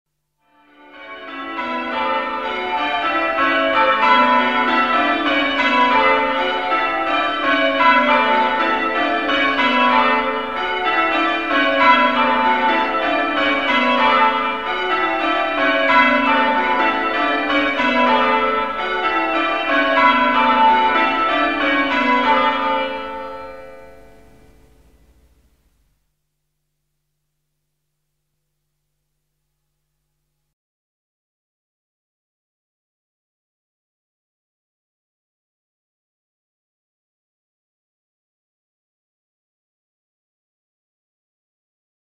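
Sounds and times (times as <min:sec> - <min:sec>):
church bells pealing: 0:00.6 - 0:25.5.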